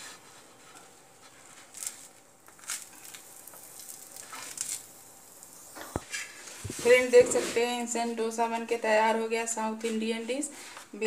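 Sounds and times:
faint sizzle: 0.0s - 11.0s
spatula scraping a crisp pancake: 2.6s - 4.8s.

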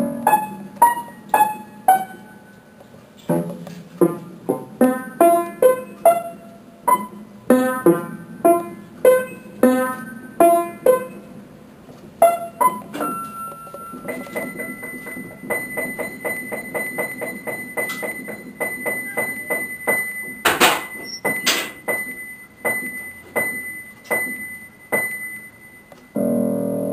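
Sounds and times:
keyboard music: 4.8s - 11.5s, 12.2s - 26.9s.

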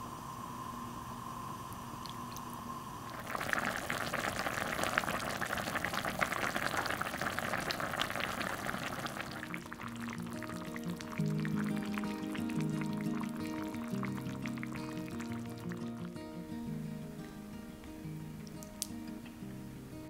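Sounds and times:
steady hiss: 0.0s - 20.0s
soup boiling and bubbling: 1.4s - 16.4s.

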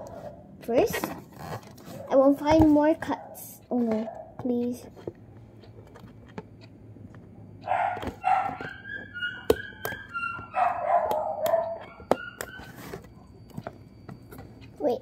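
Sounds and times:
dog barking and yelping: 0.0s - 0.5s, 1.9s - 2.3s, 3.1s - 4.4s, 7.6s - 12.8s.

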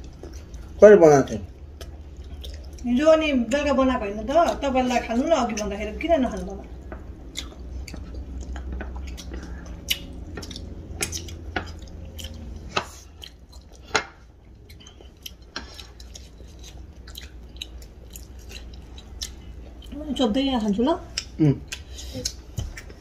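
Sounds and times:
faint low hum: 0.0s - 23.0s
people chewing food: 0.0s - 23.0s.

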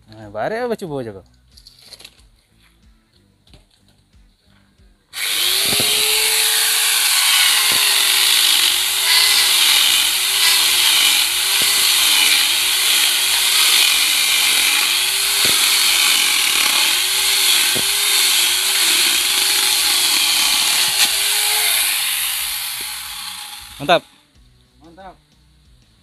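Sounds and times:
chain rasping through wood: 5.2s - 23.9s
angle grinder motor whine: 5.2s - 24.1s.

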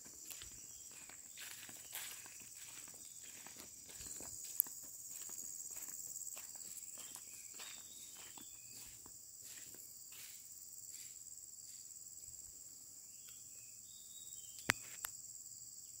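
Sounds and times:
insects chirring: 0.0s - 16.0s
faint scuffs: 0.1s - 11.2s.

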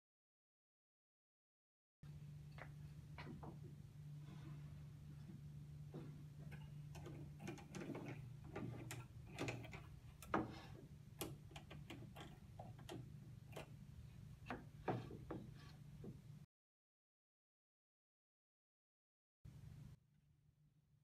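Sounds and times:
steady low hum: 2.0s - 16.5s.

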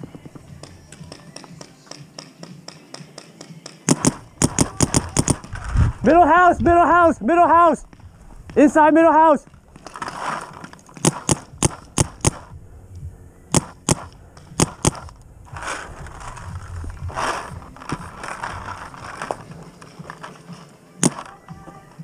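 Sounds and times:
paintball markers firing: 0.6s - 5.5s, 10.9s - 12.5s, 13.5s - 15.8s, 21.0s - 21.4s.

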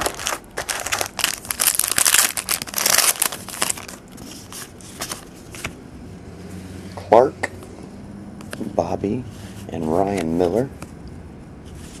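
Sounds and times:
wrapper crinkling and tearing: 0.0s - 4.7s.

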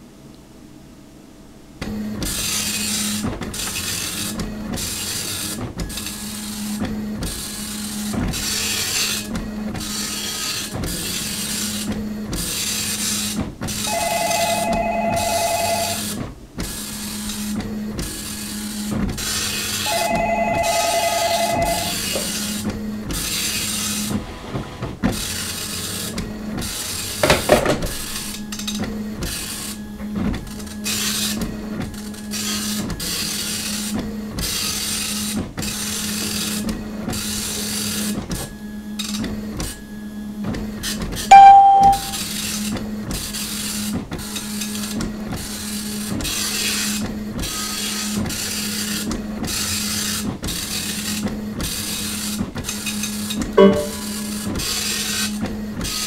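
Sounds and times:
loud short beep: 19.9s - 22.1s, 41.3s - 42.2s, 53.6s - 54.3s.

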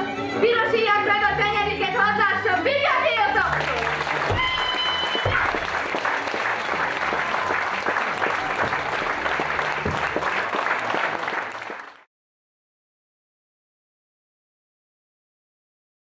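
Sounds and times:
audience applauding: 3.4s - 12.1s.

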